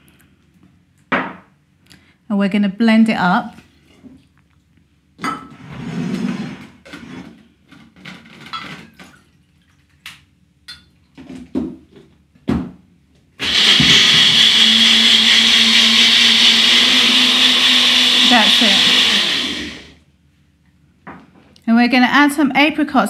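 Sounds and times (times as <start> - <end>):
blender motor whirring: 13.4 - 20.0.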